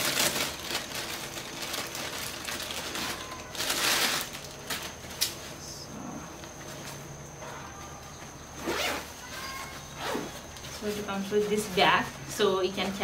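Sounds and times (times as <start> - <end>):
plastic packaging rustling: 0.0 - 5.5.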